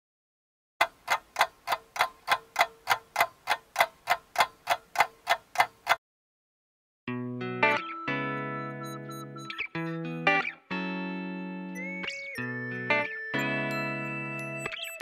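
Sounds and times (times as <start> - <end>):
clock ticking: 0.8 - 6.0
guitar music: 7.1 - 14.9.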